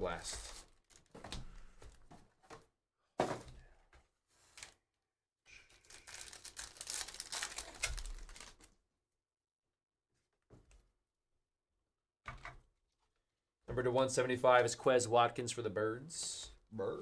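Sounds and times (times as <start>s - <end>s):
foil pack tearing and crinkling: 5.8s - 8.7s.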